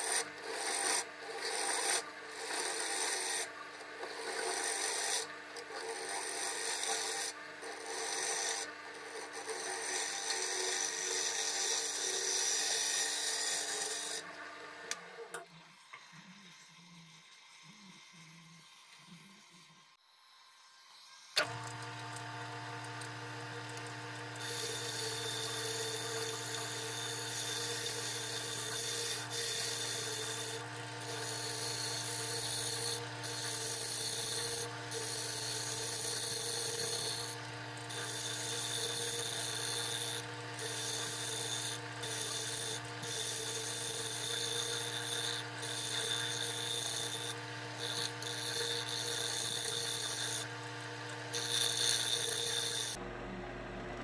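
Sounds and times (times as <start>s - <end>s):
turning tool scraping wood: 0.0s - 14.3s, 21.4s - 53.0s
lathe motor hum: 0.0s - 15.2s, 20.9s - 54.0s.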